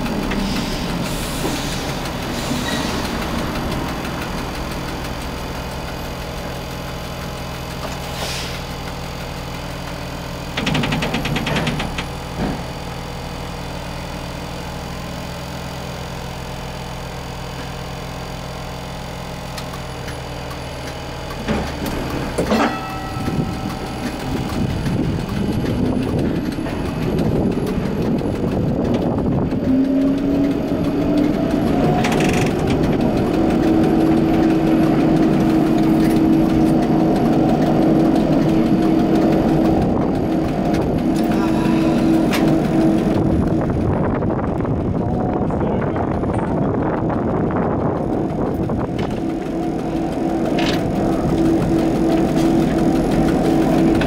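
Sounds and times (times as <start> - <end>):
traction motors whining: 0.0 - 54.0
tram electrical hum: 0.0 - 54.0
clunks: 9.8 - 12.8, 19.5 - 43.6, 48.0 - 54.0.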